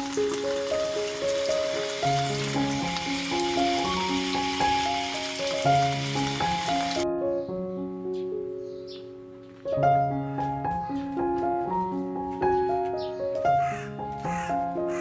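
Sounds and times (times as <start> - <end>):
tap water running into colander: 0.0 - 7.0
piano music: 0.0 - 15.0.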